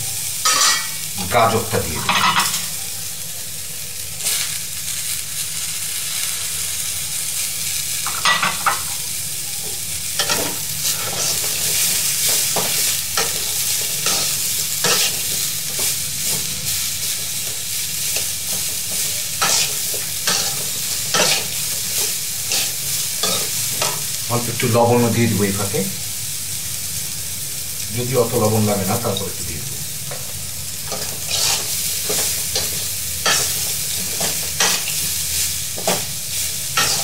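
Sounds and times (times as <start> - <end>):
vegetables sizzling in a pan: 0.0 - 37.0
metal spatula scraping a pan: 19.4 - 21.6, 30.9 - 35.0, 36.8 - 37.0.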